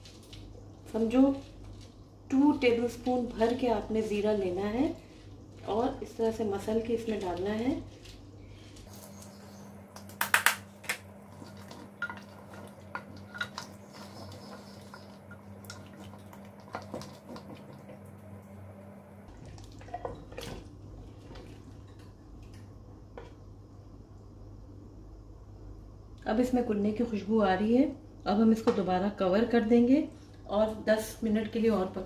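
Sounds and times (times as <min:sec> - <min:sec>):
low steady hum: 0:00.0 - 0:32.0
gravy bubbling: 0:11.2 - 0:18.4, 0:19.3 - 0:21.9.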